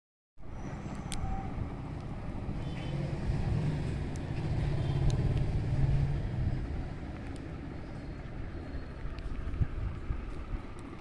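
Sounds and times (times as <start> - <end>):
background traffic rumble: 0.4 - 11.0
faint clicks: 7.1 - 7.5.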